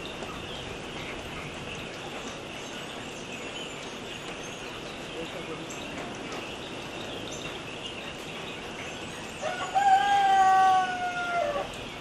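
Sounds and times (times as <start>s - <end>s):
outdoor background hiss: 0.0s - 12.0s
rooster crowing: 9.4s - 11.8s.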